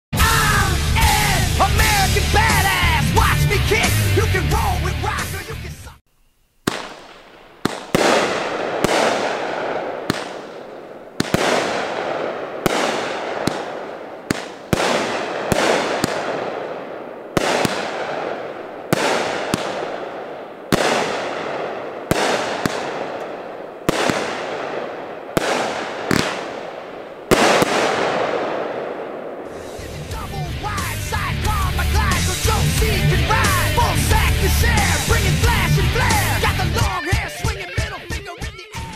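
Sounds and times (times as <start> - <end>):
firework crackle: 6.1 - 37.1
firework shots banging: 6.6 - 31.0.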